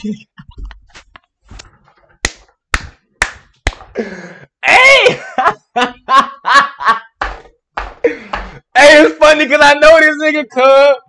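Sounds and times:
sharp slaps: 2.2s - 4.0s, 7.2s - 8.6s.

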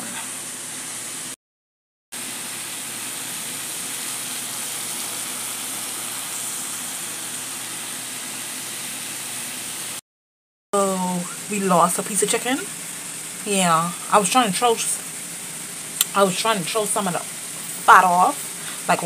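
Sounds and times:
food frying in hot oil: 0.0s - 1.4s, 2.2s - 10.0s, 10.8s - 19.0s.

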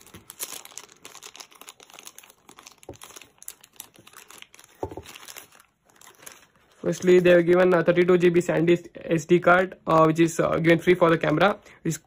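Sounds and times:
plastic packaging crinkling: 0.0s - 7.5s.

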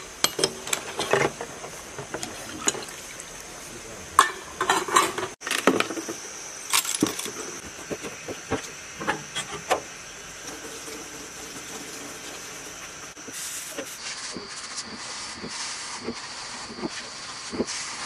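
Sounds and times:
faint steady hiss: 0.0s - 18.0s
knocks and metallic clatter: 0.1s - 3.0s.

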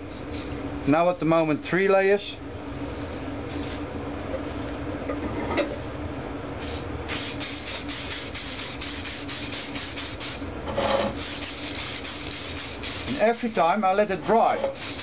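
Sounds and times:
steady low hum: 0.0s - 15.0s
spray can hissing: 7.1s - 10.4s, 11.2s - 13.5s.

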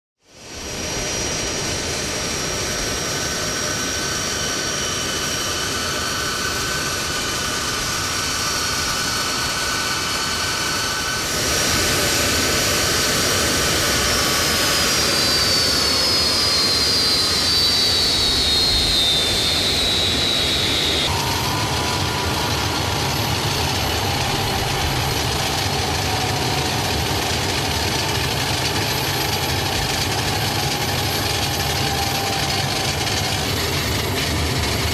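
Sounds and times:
jet engines whining: 0.4s - 34.9s
falling high tone: 9.4s - 27.0s.

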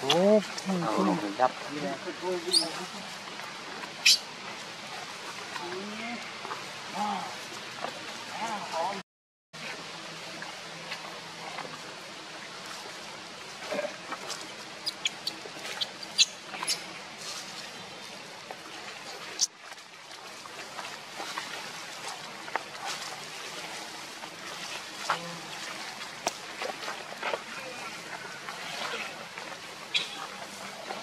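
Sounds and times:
monkeys squeaking and clicking: 4.0s - 4.2s, 14.8s - 16.9s, 29.9s - 30.3s.

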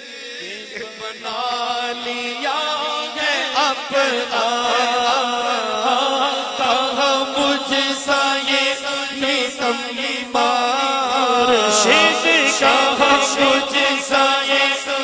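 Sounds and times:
man singing into microphone: 0.0s - 15.0s.

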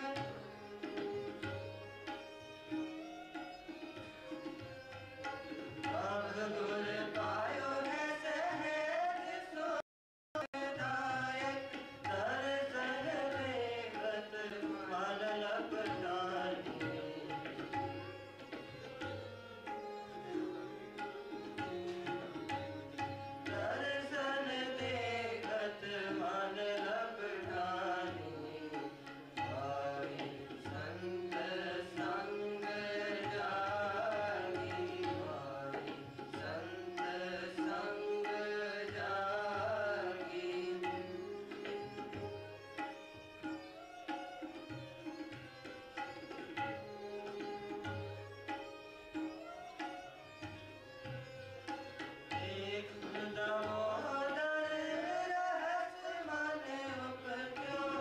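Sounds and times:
harmonium drone: 0.0s - 6.3s
bowed string instrument melody: 0.0s - 6.6s, 16.5s - 23.6s, 40.3s - 53.7s
tabla rhythm: 0.0s - 9.6s, 10.4s - 58.0s.

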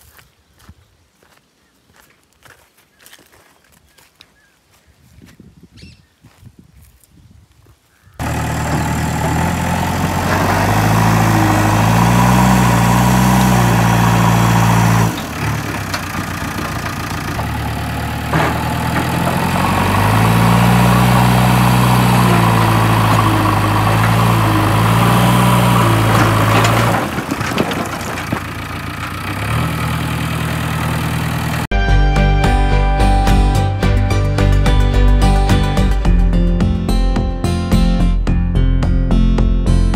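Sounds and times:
diesel engine revving under load: 8.2s - 31.7s.

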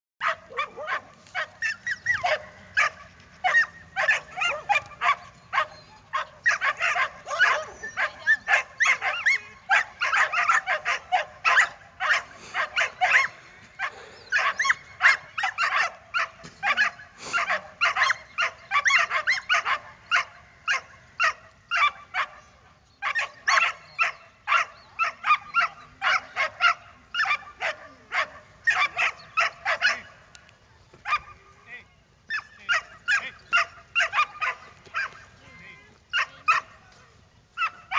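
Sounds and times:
dog yipping and whining: 1.6s - 2.4s.

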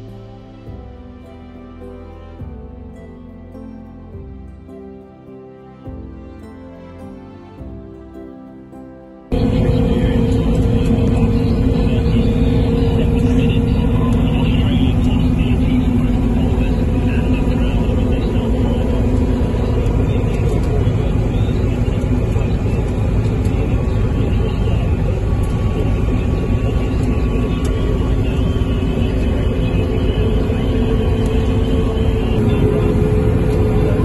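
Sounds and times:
combine harvester drone: 9.2s - 34.0s.

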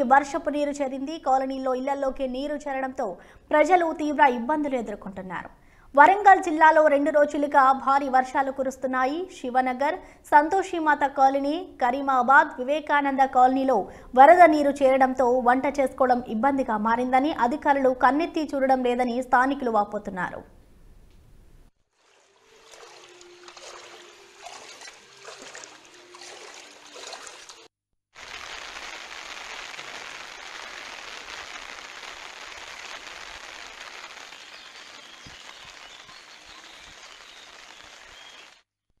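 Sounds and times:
water splashing and trickling: 21.9s - 28.4s
steady rush of flowing water: 22.0s - 27.6s.

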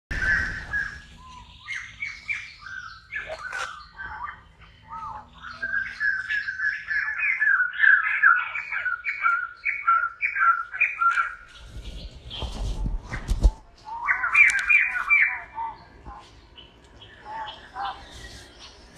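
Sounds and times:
high chirping animal calls: 0.1s - 12.5s, 13.8s - 18.9s
noisy rustle: 11.4s - 15.3s, 17.8s - 18.9s.

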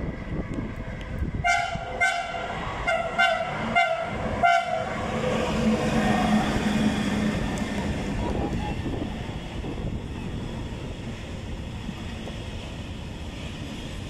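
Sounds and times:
train horn short toots: 1.4s - 4.9s.

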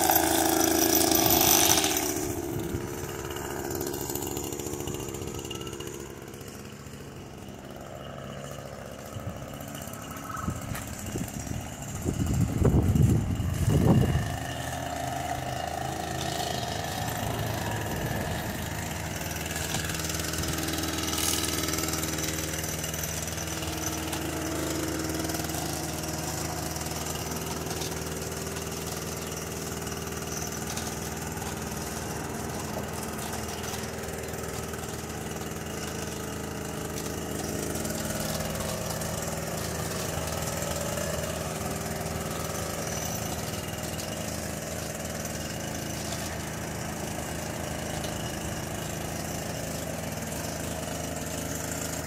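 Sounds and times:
small gasoline engine running: 0.0s - 52.0s.

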